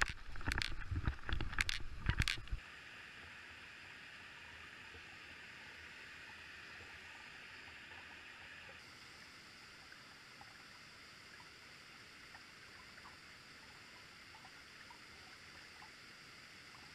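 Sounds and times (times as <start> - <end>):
faint ticks: 0.0 - 2.6, 9.8 - 16.9.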